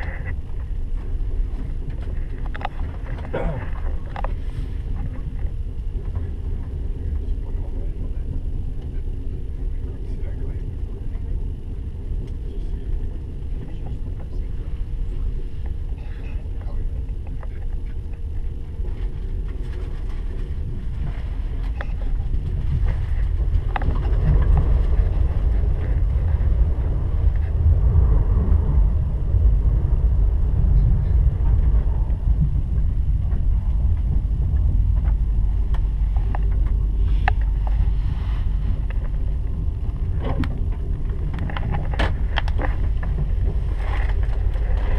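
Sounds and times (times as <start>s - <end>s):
train interior rumble: 0.0s - 44.9s.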